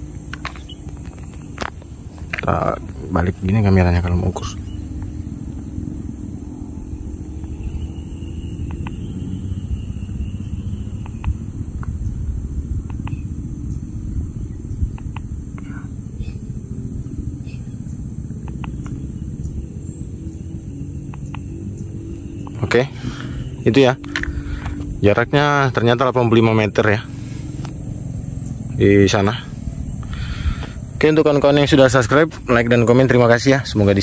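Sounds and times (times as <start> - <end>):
insect drone: 0.0 - 34.0
low microphone rumble: 0.0 - 34.0
faint clicks: 11.0 - 12.0, 14.9 - 15.7, 18.4 - 19.0.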